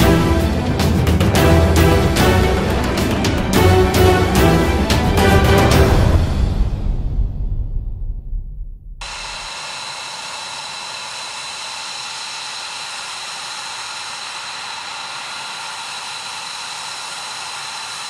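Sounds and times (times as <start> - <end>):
music: 0.0 - 9.0
jet engines running with turbine whine: 9.0 - 18.0.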